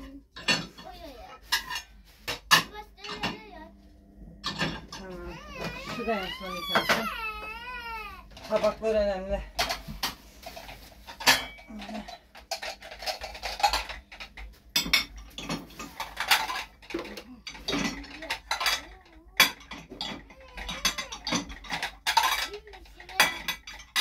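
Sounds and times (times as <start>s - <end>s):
ceramic dishes clattering: 0.4s - 3.4s, 4.4s - 5.2s, 9.6s - 24.0s.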